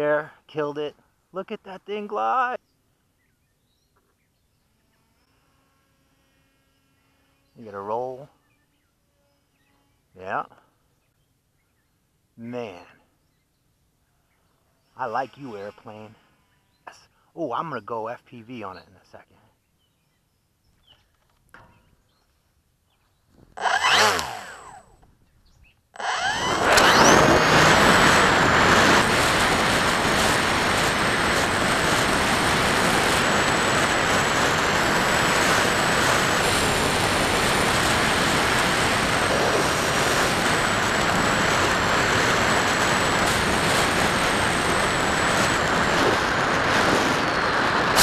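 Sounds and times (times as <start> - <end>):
electric motor and propeller whine: 4.4 - 10.1, 23.6 - 25.1, 26.0 - 48.0
aircraft passing: 23.6 - 25.0, 26.0 - 48.0
wind rushing: 26.2 - 48.0.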